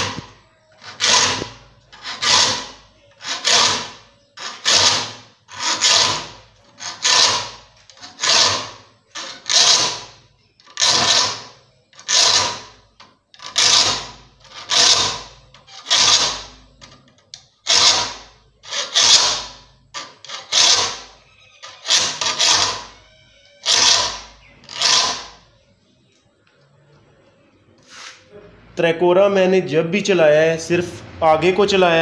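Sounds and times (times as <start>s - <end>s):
file rasping on saw teeth: 0.0s - 17.0s, 17.6s - 25.5s.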